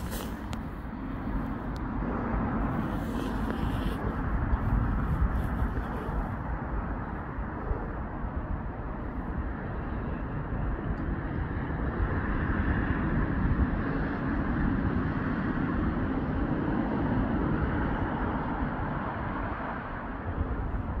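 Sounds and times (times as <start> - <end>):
vehicle passing: 0.0 - 7.8
road traffic rumble: 0.0 - 21.0.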